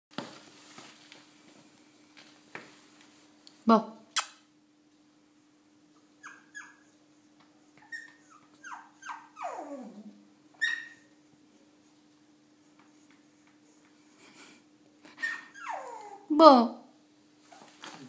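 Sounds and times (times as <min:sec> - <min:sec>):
puppy whining: 0:06.0 - 0:11.3, 0:12.5 - 0:16.3.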